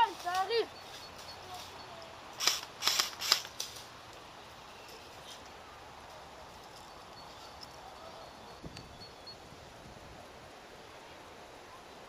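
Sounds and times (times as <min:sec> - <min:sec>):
airsoft rifle shots: 0:02.4 - 0:03.6.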